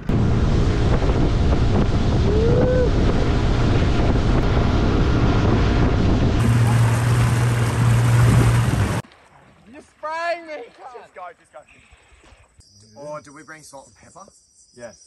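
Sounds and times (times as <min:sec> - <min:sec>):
motorboat motor drone: 0:00.0 - 0:09.0
wind buffeting microphone: 0:00.0 - 0:09.0
water rushing past hull: 0:00.0 - 0:11.0.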